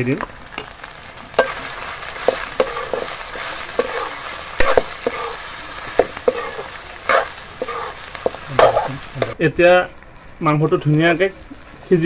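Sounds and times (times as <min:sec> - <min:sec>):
pork sizzling in fat: 0:00.0 - 0:12.0
metal ladle scraping wok: 0:00.6 - 0:09.4.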